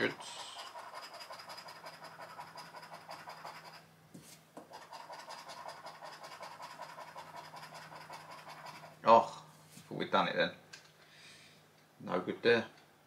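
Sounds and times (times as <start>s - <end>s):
scratch card being scratched: 0.1s - 9.0s.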